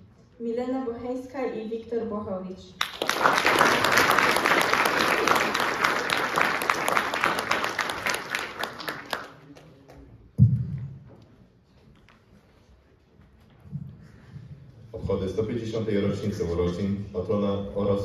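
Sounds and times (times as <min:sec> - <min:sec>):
audience applauding: 0:02.8 - 0:09.8.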